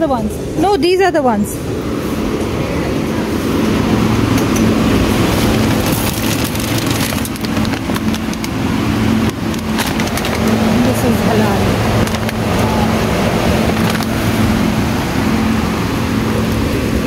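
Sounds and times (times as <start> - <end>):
store background hum: 0.0 - 17.0
plastic bag rustling: 5.1 - 12.4.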